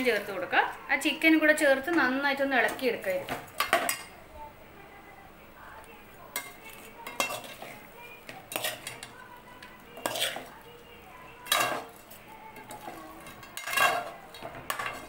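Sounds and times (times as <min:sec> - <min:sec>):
metal spoon scraping pot: 0:06.4 - 0:07.9, 0:08.5 - 0:10.6, 0:11.4 - 0:15.0.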